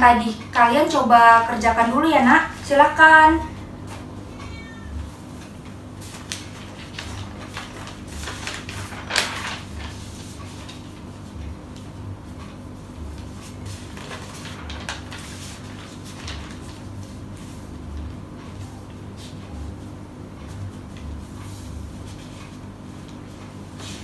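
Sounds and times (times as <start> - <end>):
steady low hum: 0.0 - 24.0
paper rustling: 5.3 - 19.7, 20.4 - 24.0.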